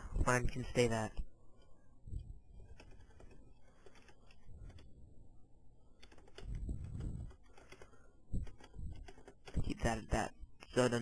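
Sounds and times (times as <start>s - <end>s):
keyboard keys clicking: 6.0s - 9.7s.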